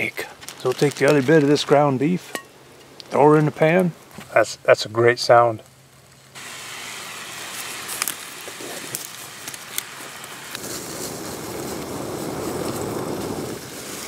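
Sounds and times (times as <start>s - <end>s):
sharp crackles: 0.0s - 14.0s
meat sizzling in a skillet: 6.4s - 14.0s.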